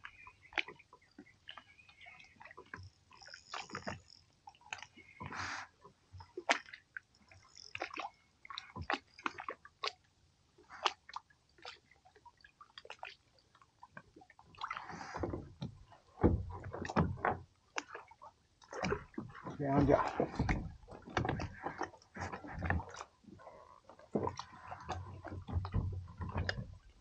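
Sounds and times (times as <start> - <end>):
light clicks and knocks in kayak: 0.0 - 27.0
water sloshing: 0.0 - 27.0
heavy knocks against hull: 15.3 - 17.4, 19.5 - 22.9.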